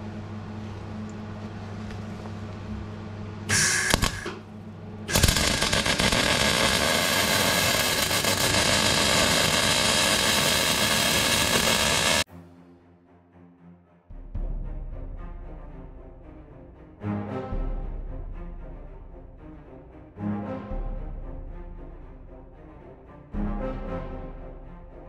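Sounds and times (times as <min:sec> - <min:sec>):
low hum: 0:00.0 - 0:12.3
welding arc crackling: 0:03.5 - 0:04.5, 0:05.1 - 0:12.3.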